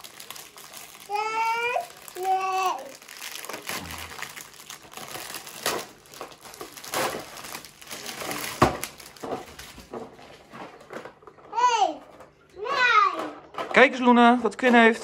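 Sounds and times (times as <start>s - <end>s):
wrapping paper crinkling: 0.0s - 11.3s.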